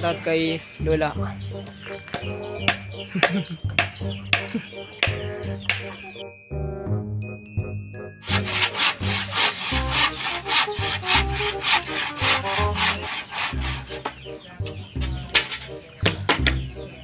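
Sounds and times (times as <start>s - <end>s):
hand saw cutting wood: 8.2s - 14.2s.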